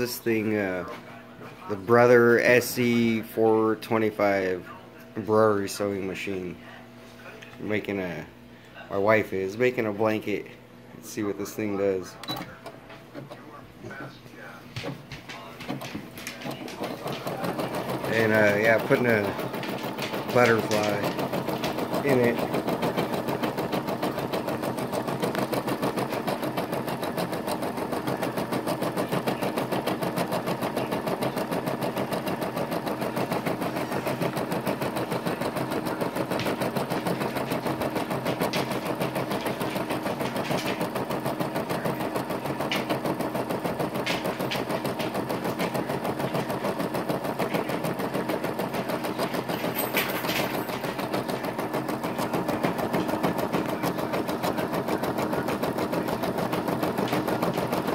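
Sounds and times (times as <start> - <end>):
embroidery machine needle clatter: 14.8 - 57.9.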